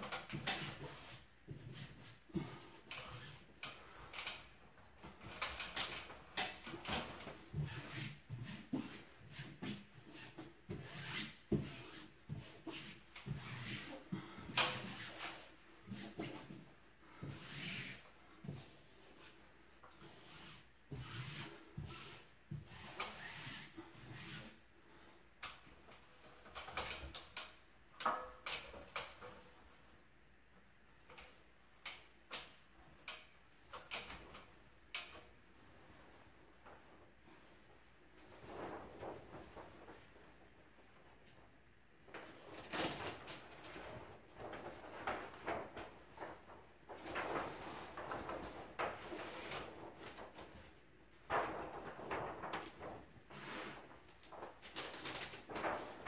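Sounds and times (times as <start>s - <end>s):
paper rustling and rubbing: 42.2s - 56.0s.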